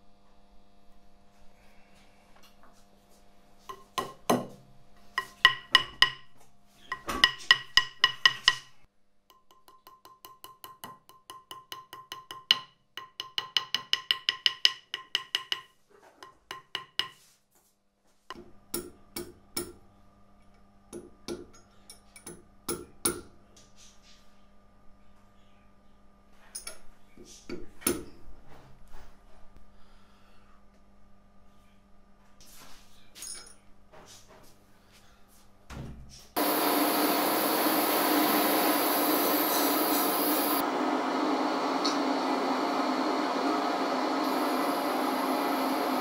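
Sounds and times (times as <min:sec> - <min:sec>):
hammer tapping on metal: 0:03.7 - 0:17.2, 0:18.3 - 0:19.8, 0:20.9 - 0:23.3.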